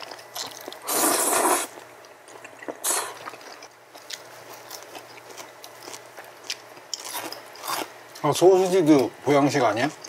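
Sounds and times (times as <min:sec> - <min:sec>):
person slurping noodles: 0:00.8 - 0:01.8, 0:02.8 - 0:03.2.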